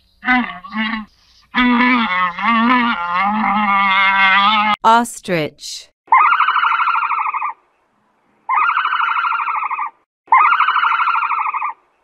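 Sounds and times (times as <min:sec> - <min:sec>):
trilling rattling animal call: 0:00.0 - 0:04.8, 0:06.1 - 0:07.6, 0:08.5 - 0:11.8.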